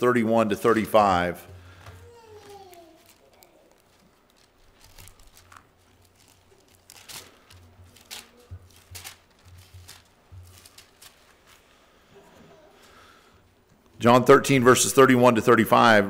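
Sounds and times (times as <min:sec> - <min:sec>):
paper pages rustling: 0:01.6 - 0:12.0.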